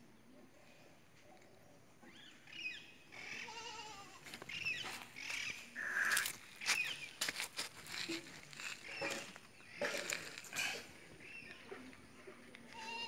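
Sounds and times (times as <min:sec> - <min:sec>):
goat bleating: 0:03.2 - 0:04.2, 0:12.7 - 0:13.0.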